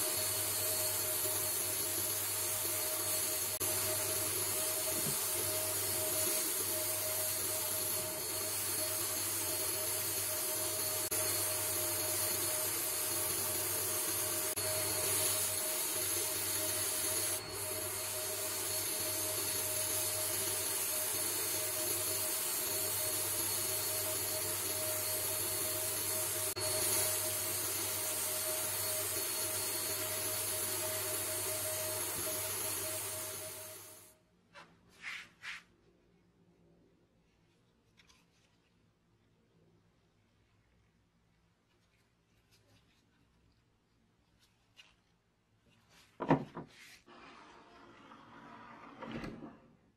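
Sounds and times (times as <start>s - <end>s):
sandblaster hissing: 0.0s - 34.0s.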